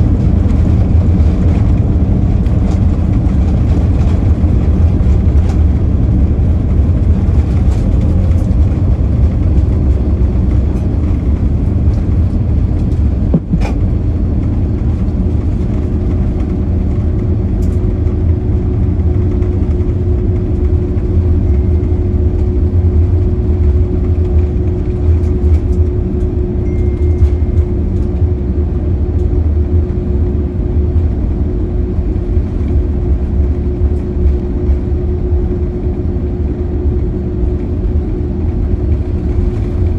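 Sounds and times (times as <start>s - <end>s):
airliner rumbling on runway: 0.0s - 39.9s
steady hum: 0.0s - 39.9s.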